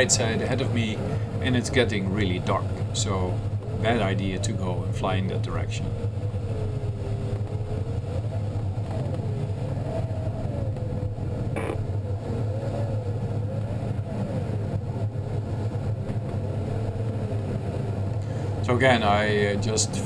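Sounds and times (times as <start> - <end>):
airflow rushing in glider cockpit: 0.0 - 20.0
wavering electronic tone: 3.5 - 18.1.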